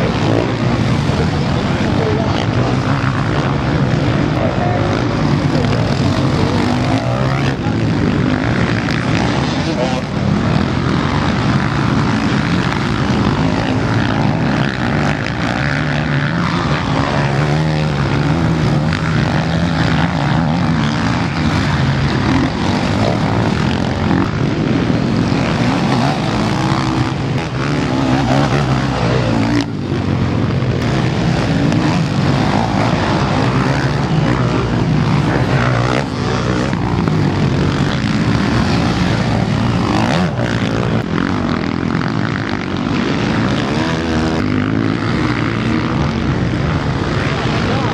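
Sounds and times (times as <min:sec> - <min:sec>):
background bike engines running: 0:00.0 - 0:47.9
motocross bike engines revving: 0:00.0 - 0:47.9.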